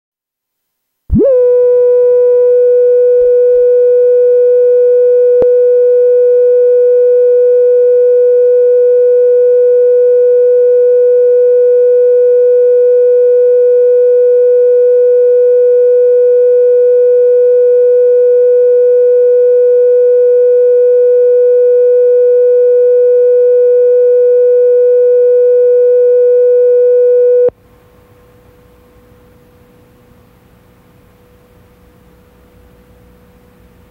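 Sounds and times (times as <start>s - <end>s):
steady test tone: 1.1s - 27.5s.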